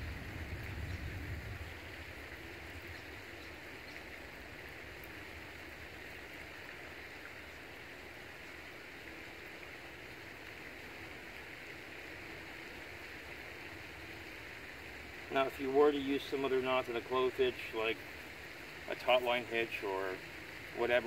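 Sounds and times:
faint outdoor hiss: 0.0 - 21.0.

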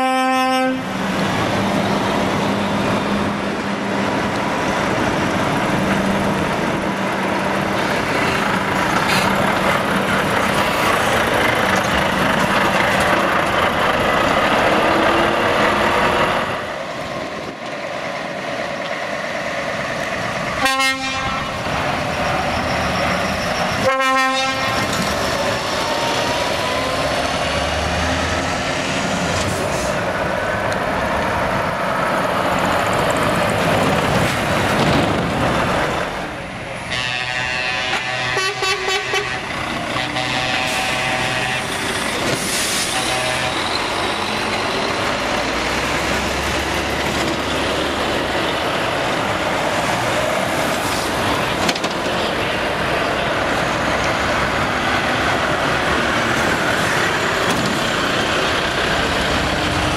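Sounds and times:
multi-note air horn blasts: 0.0 - 0.8, 20.6 - 21.5, 23.8 - 24.8, 36.9 - 41.8, 42.9 - 43.6
truck diesel engines: 0.0 - 59.9
truck engine revving: 39.0 - 59.9.

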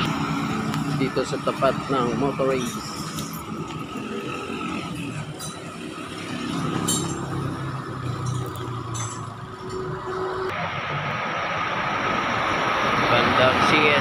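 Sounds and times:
vehicle engine rumbling: 0.0 - 14.0
sharp metallic clinks: 0.8 - 10.1.

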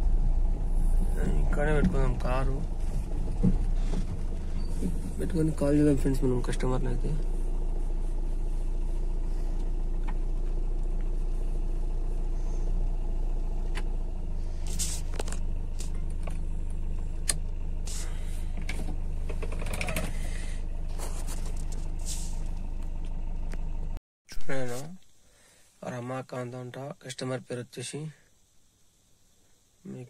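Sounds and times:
car engine hum from cabin: 0.0 - 24.0.

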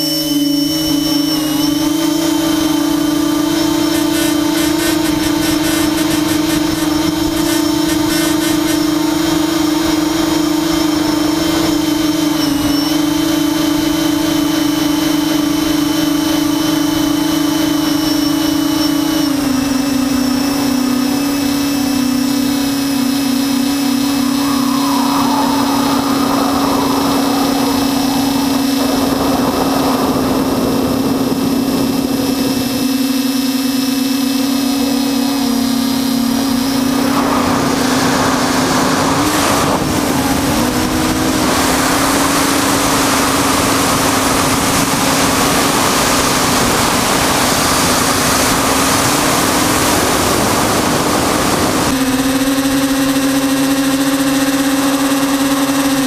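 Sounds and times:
drone motors buzzing: 0.0 - 43.6
wind on the microphone: 22.2 - 33.5.

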